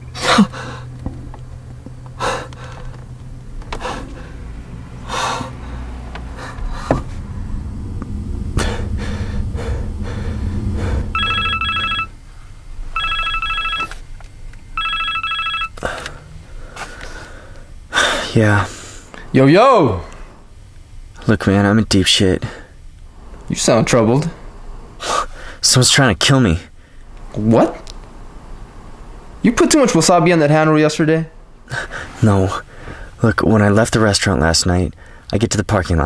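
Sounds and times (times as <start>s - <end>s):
low rumble: 0.0s - 14.8s
man breathing heavily: 0.2s - 1.0s, 2.1s - 3.1s, 3.7s - 7.3s, 8.5s - 11.2s, 15.8s - 19.3s, 31.7s - 33.2s
mobile phone ringing: 11.2s - 12.1s, 12.9s - 14.0s, 14.8s - 15.8s.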